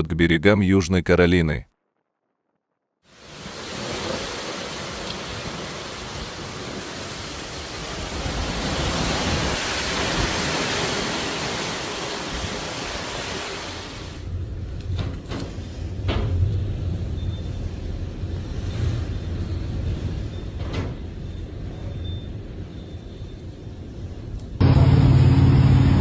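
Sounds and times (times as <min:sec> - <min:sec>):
heavy rain: 0:03.1 - 0:17.2, 0:24.6 - 0:26.0
strong gusting wind: 0:03.2 - 0:14.8.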